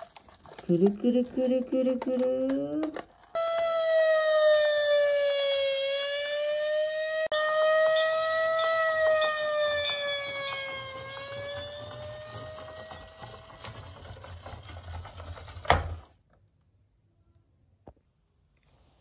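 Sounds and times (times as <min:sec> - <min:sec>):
fire engine siren wailing: 0:03.4 - 0:13.7.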